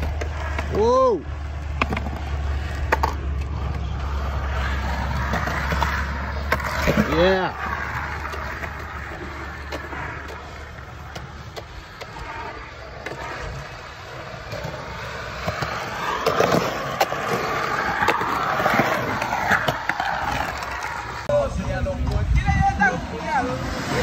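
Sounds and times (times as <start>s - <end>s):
skateboard wheels rolling on concrete: 0.0s - 24.0s.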